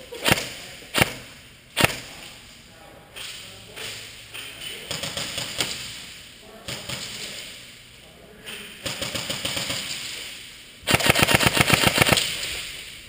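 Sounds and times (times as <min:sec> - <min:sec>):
rattling airsoft fire: 0:00.1 - 0:02.3, 0:04.8 - 0:07.6, 0:08.8 - 0:13.0
airsoft gun cracks echoing: 0:00.2 - 0:02.2, 0:10.9 - 0:12.5.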